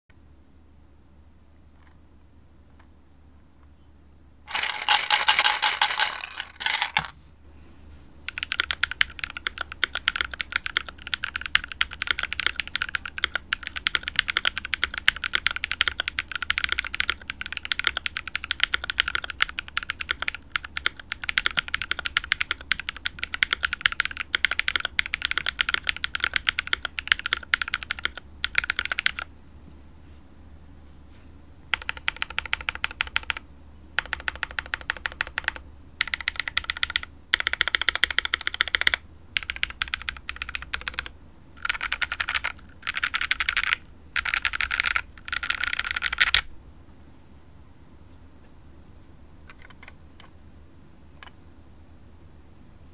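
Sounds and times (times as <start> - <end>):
mechanical keyboard typing: 4.5 - 7.1, 8.3 - 29.3, 31.7 - 33.4, 34.0 - 46.5, 49.5 - 50.3.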